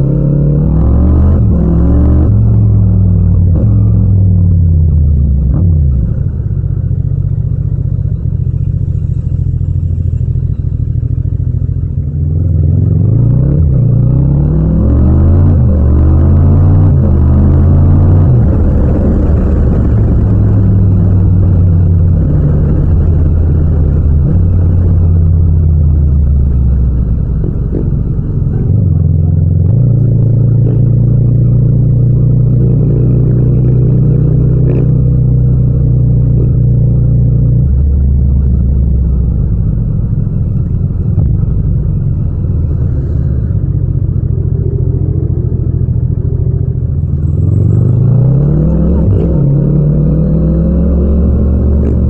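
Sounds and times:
motorcycle engine running: 2.3 - 14.4, 15.3 - 52.0.

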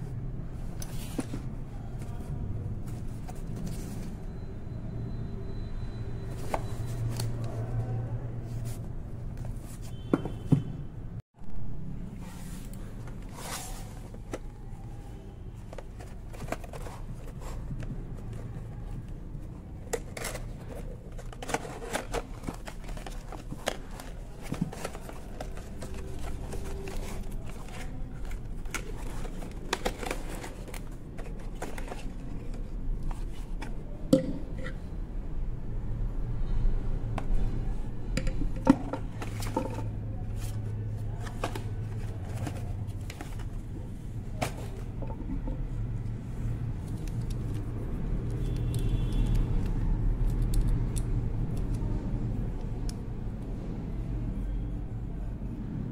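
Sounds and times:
cardboard boxes rustling and tapping: 19.9 - 32.6, 38.7 - 45.8.

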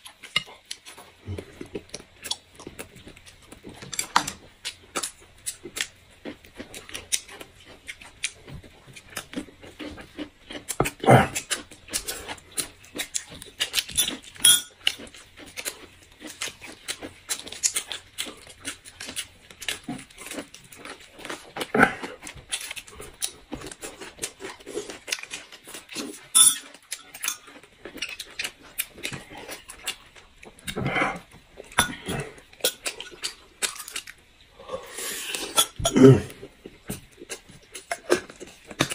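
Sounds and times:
wet chewing and lip-smacking: 0.0 - 34.4, 35.3 - 38.9
tableware clinking: 14.4 - 14.7, 26.4 - 27.5.

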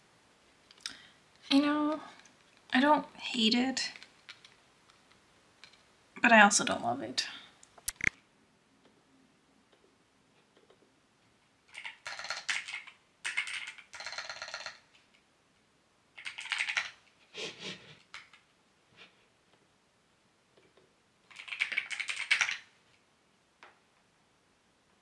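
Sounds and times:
mechanical keyboard typing: 11.7 - 14.9, 16.2 - 17.0, 21.3 - 22.7.

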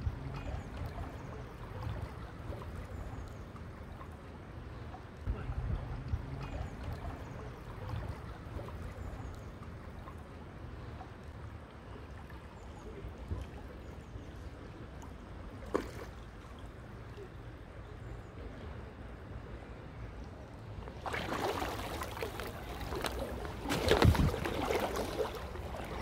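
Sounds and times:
river water rushing: 21.0 - 26.0.

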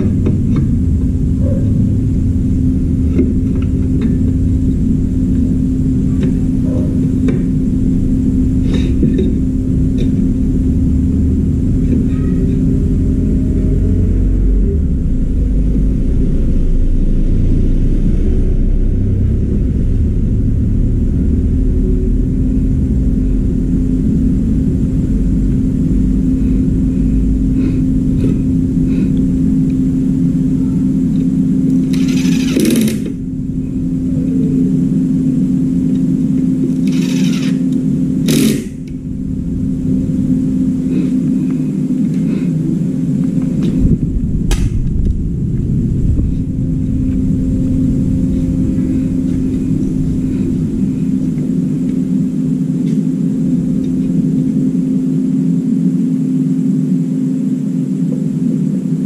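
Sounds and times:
heavy rumble: 0.0 - 59.0
low hum: 0.0 - 59.0.

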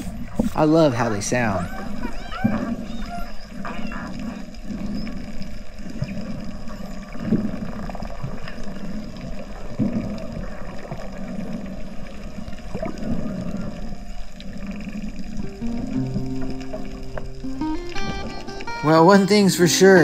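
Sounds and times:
low underwater rumble: 0.0 - 18.7
dolphin whistles: 1.5 - 5.2.

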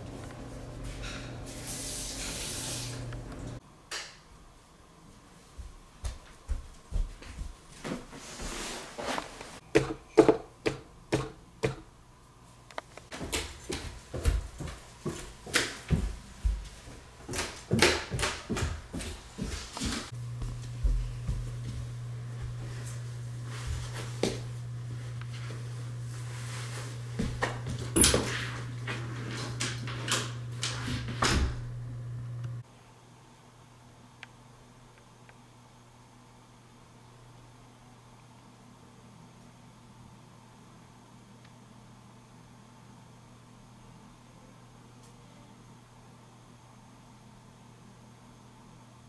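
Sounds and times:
footsteps on hard floor: 5.5 - 9.4, 13.1 - 29.4
steady low hum: 10.8 - 33.2.

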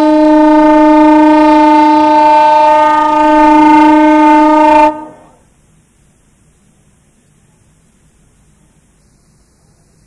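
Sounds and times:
train horn: 0.0 - 5.5.

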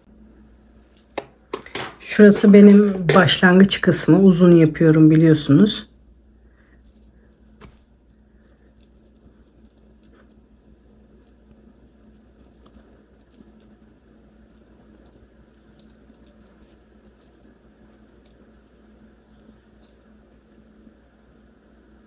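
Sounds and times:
low steady hum: 0.0 - 22.0
crochet hook working yarn: 6.8 - 20.8.

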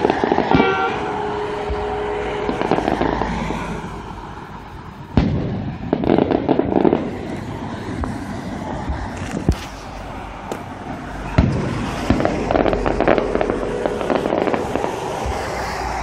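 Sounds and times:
rapid firework crackles: 0.0 - 16.0
smaller firework bangs: 0.0 - 16.0
firework boom: 5.1 - 7.3.

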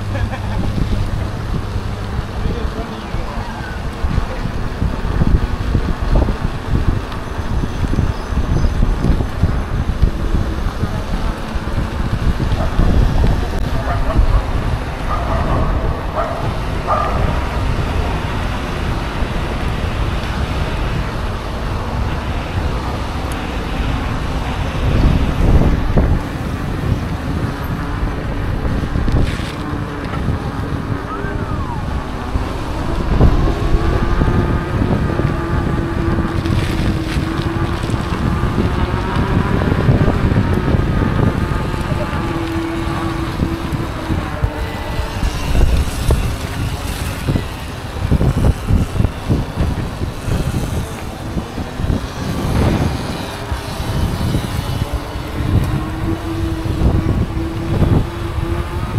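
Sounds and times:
wind buffeting microphone: 0.0 - 58.9.

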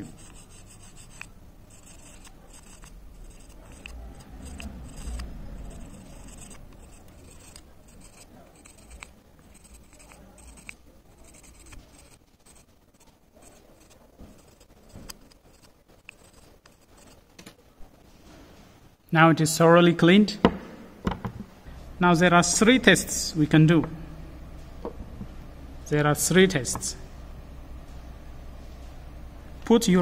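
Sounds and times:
hacksaw blade scraping metal: 0.0 - 17.2.

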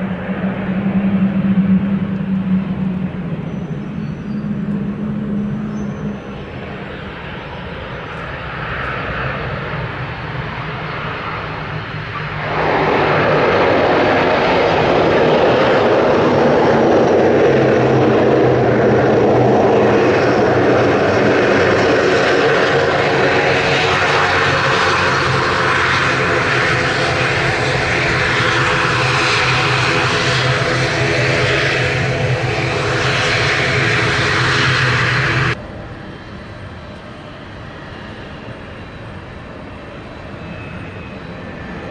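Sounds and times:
turboprop engines roaring: 0.0 - 41.9.

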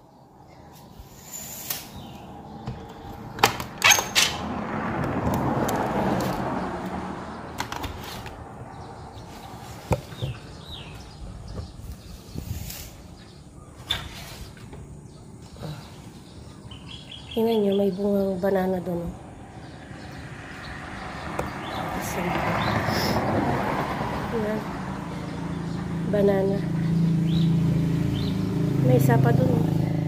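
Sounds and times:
metal window latch clicking: 3.4 - 4.4.

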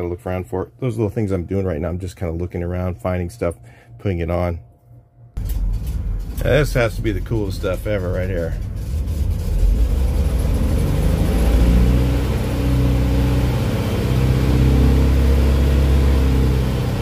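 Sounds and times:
engine revving: 5.4 - 17.0.

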